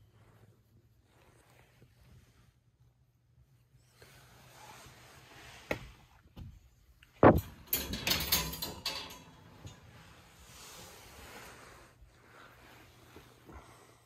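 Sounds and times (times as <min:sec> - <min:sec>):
wire cage clicks: 0:07.2 - 0:09.8
wire cage rattling: 0:07.2 - 0:10.4.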